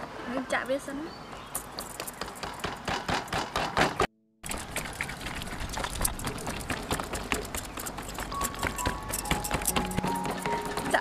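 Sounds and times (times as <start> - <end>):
forks clicking and tapping on skin: 5.7 - 11.0.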